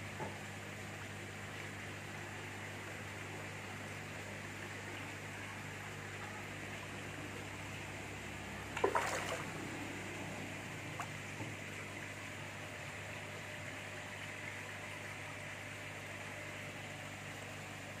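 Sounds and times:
fish splashing: 8.6 - 11.3.

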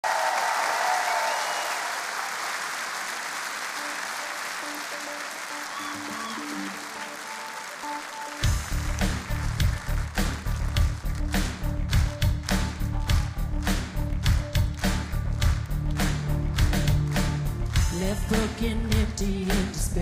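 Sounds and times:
studio audience applauding: 0.0 - 18.8
drums and bass: 8.4 - 20.0.

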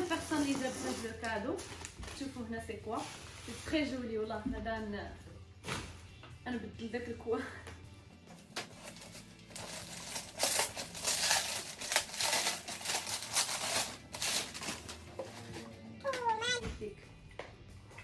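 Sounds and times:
gift packaging crinkling: 8.7 - 15.1, 16.4 - 16.6.

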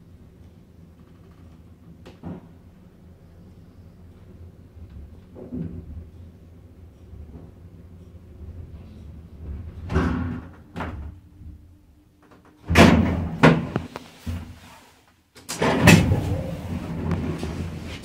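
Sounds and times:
elevator doors slamming: 9.4 - 11.6, 12.6 - 13.9, 15.6 - 17.4.

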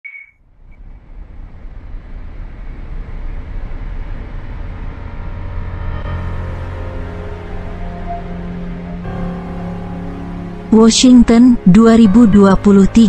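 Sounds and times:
road and wind noise: 0.4 - 10.7
heavy truck rumbling: 0.5 - 13.0.

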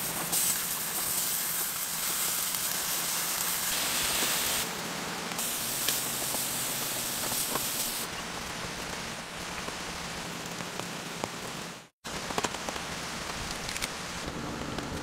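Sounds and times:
meat sizzling on a grill: 0.0 - 4.7, 5.4 - 8.1.

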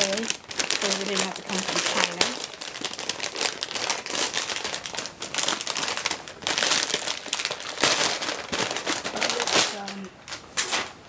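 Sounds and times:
crinkly packaging crumpling: 0.0 - 11.0.

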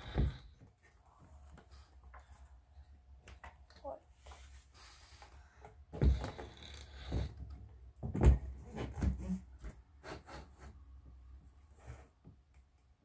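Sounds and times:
dull knocks and bumps: 8.0 - 9.8.

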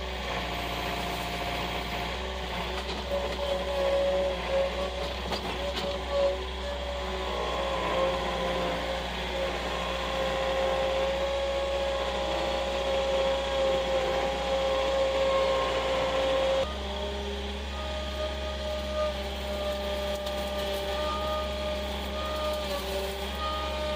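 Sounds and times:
loader engine with whine: 0.0 - 23.9
brush cracking: 19.2 - 23.4.

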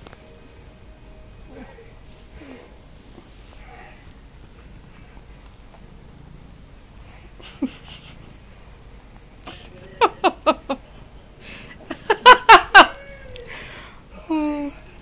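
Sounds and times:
person laughing: 7.4 - 8.4, 9.5 - 10.9, 11.8 - 13.5.

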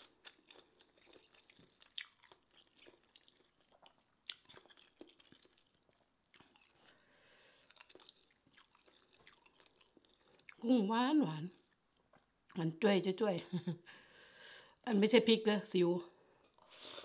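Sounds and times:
person chewing food: 0.0 - 10.7, 11.5 - 12.6, 16.2 - 17.0.

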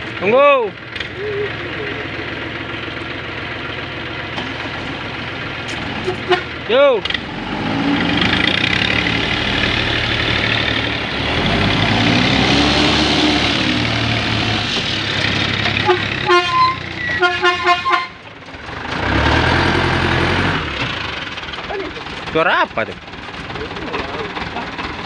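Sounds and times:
diesel truck engine straining: 0.0 - 25.0
horn short toots: 6.0 - 6.5, 15.8 - 18.2.

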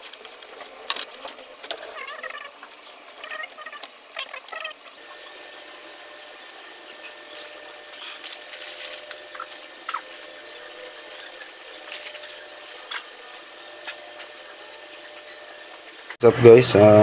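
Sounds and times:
squeaky chirps and clicks: 1.9 - 5.0.

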